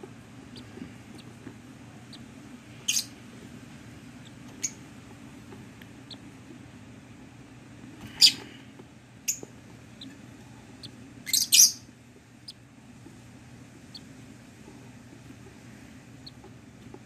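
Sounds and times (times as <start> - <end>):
bird chicks shrill calls: 2.8 - 3.2, 10.8 - 11.9.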